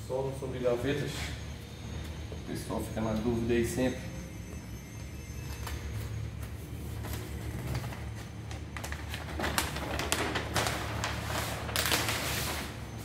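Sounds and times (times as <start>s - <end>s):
paper sheets rustling: 6.9s - 13.0s.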